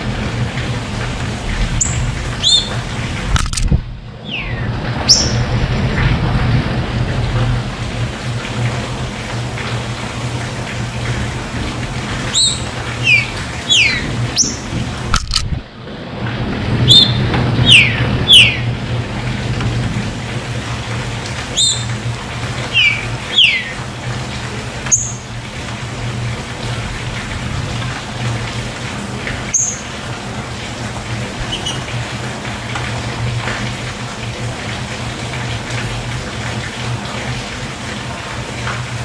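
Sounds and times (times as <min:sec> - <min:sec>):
running water rushing: 0:00.0 - 0:39.0
bird whistling song: 0:01.8 - 0:02.8, 0:04.2 - 0:05.4, 0:12.3 - 0:14.6, 0:16.9 - 0:18.7, 0:21.6 - 0:21.9, 0:22.7 - 0:23.8, 0:24.9 - 0:25.2, 0:29.5 - 0:29.8.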